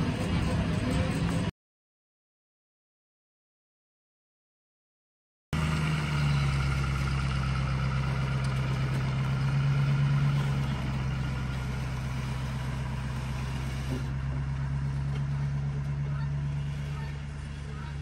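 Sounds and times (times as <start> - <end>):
pickup truck engine running: 0.0 - 1.5, 5.6 - 18.0.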